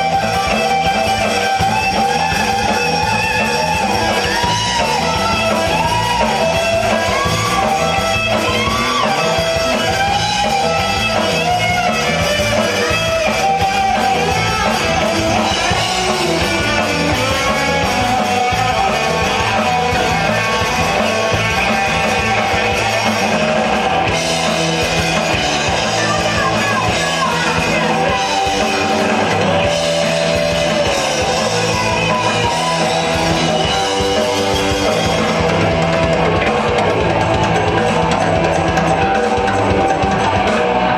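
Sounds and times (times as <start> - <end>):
distorted electric guitar: 0.0 - 40.9
drum kit: 0.0 - 40.9.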